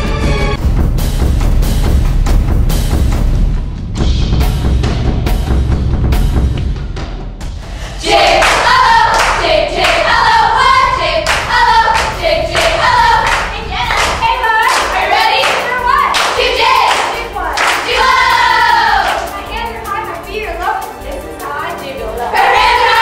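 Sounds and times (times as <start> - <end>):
girls chanting together: 7.8 - 19.6, 22.2 - 23.0
hands clapping: 8.1 - 10.2, 11.2 - 18.2, 19.0 - 19.4.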